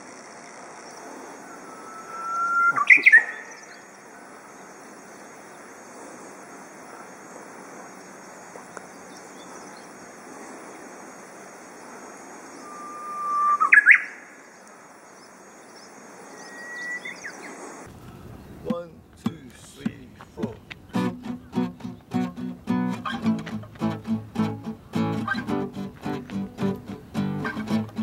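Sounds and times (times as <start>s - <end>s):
steady background hiss: 0.0s - 23.0s
bird singing whistled song: 0.9s - 4.5s, 12.5s - 14.4s, 15.7s - 17.5s.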